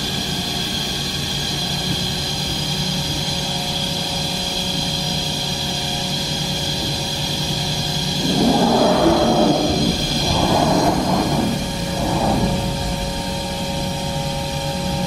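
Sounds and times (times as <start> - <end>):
machinery humming: 6.8 - 15.0
high whine: 7.8 - 14.6.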